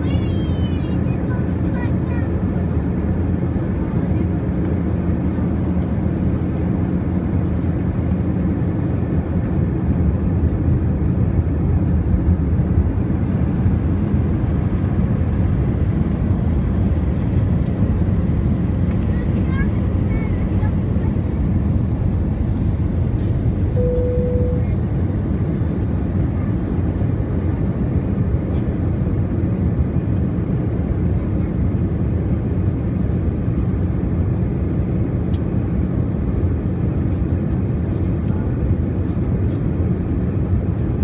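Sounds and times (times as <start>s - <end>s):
aircraft cabin rumble: 0.0s - 41.0s
brief steady tone: 23.7s - 24.8s.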